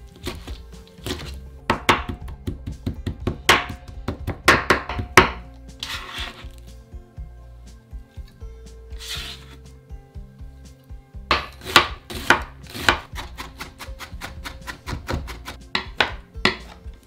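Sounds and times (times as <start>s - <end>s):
background music: 0.0s - 17.0s
knife chopping on cutting board: 0.2s - 6.4s, 11.3s - 16.8s
knife scraping board: 5.7s - 6.6s, 8.9s - 9.7s.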